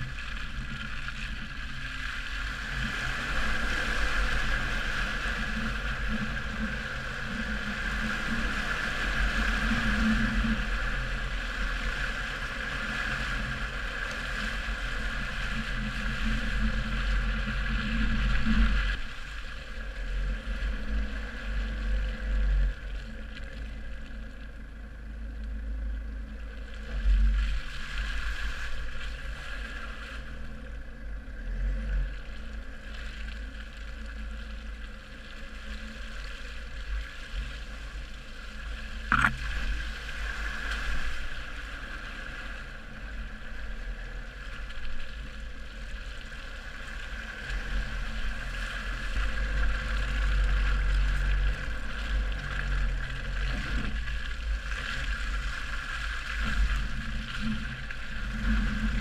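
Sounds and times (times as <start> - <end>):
car driving on dirt track: 0.0 - 59.0
wind rumble on microphone: 0.0 - 59.0.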